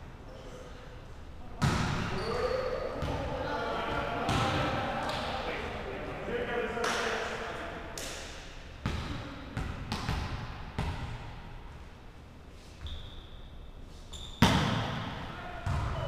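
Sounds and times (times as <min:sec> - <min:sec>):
volleyball being hit: 0:14.4 - 0:16.0.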